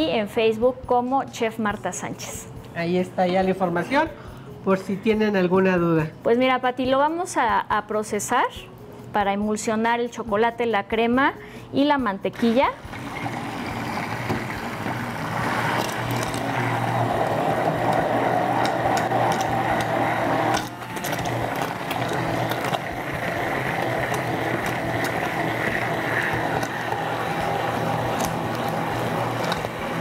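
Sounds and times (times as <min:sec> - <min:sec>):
immersion blender motor hum: 0:12.4 - 0:30.0.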